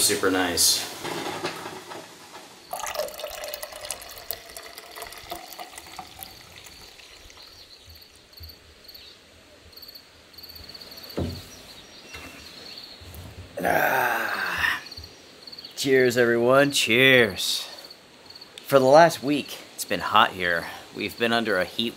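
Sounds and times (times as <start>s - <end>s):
faint insects chirping: 0.0s - 21.9s
liquid poured into a cup: 2.7s - 8.1s
single knock: 11.2s - 11.5s.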